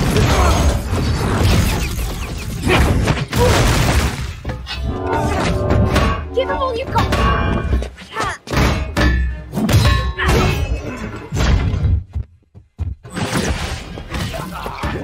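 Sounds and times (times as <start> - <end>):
dramatic score music: 4.4 - 10.0.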